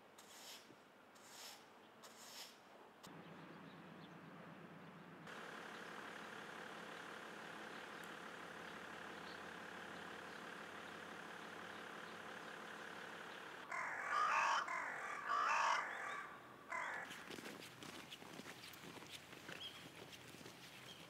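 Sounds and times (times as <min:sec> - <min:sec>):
crow cawing: 0:13.6 - 0:17.4.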